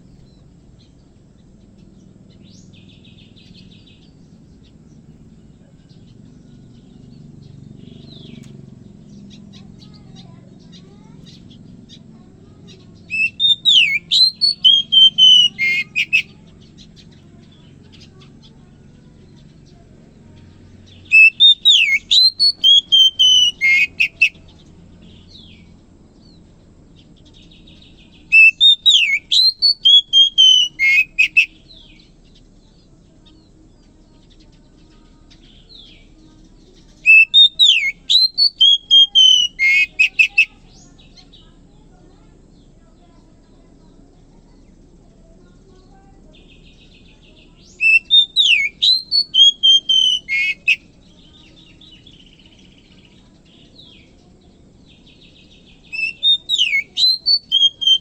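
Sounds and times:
bird singing whistled phrases: 0:12.6 - 0:18.1, 0:20.9 - 0:24.5, 0:27.8 - 0:32.1, 0:35.3 - 0:41.4, 0:46.3 - 0:54.3, 0:54.9 - 0:58.0.

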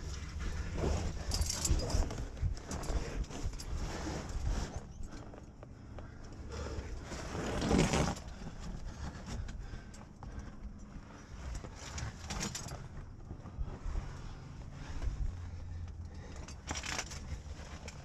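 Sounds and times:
body scraping against rock: 0:00.0 - 0:05.4, 0:06.5 - 0:09.5
climbing gear clicks: 0:00.0 - 0:13.6, 0:14.8 - 0:18.0.

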